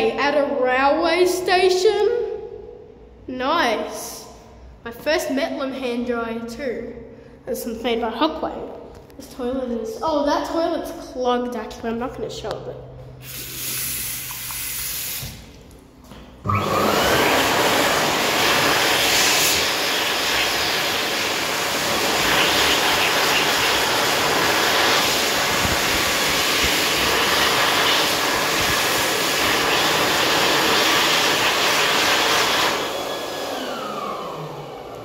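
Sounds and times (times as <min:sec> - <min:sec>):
hand dryer blowing air: 0:13.2 - 0:15.6, 0:16.2 - 0:35.0.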